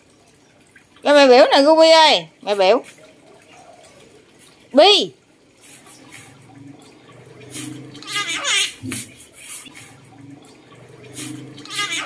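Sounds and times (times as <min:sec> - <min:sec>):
parakeet mimicking speech: 0:08.0 - 0:08.8, 0:11.6 - 0:12.0.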